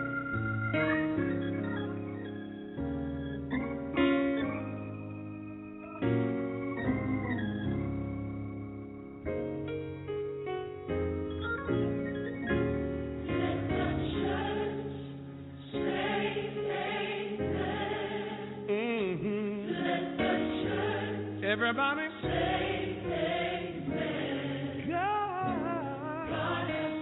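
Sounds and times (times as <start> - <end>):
instrumental backing: 0.0 - 18.0
gospel choir singing: 13.1 - 27.0
lead singer vocal runs: 18.2 - 27.0.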